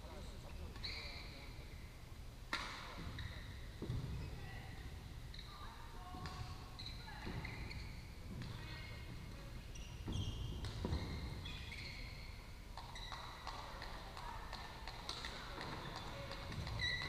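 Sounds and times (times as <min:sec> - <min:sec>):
shoes squeaking on court: 0:00.5 - 0:01.7, 0:02.6 - 0:17.0
rackets hitting shuttlecocks: 0:10.1 - 0:11.1.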